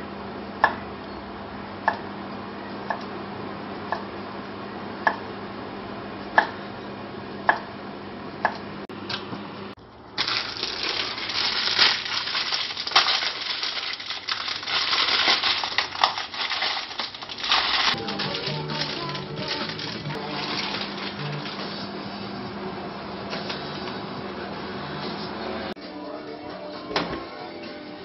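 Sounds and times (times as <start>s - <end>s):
plastic packaging crinkling: 10.2s - 21.8s.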